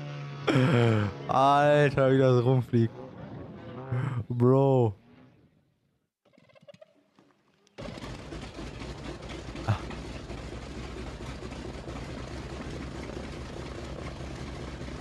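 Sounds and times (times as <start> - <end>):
model plane engines running: 0.0 - 4.1, 7.7 - 15.0.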